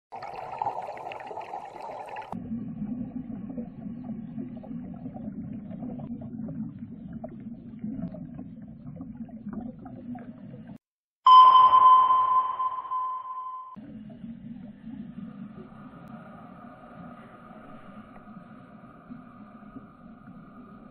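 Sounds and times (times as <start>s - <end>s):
muffled underwater ambience: 0.4s - 20.9s
sonar ping: 11.3s - 13.8s.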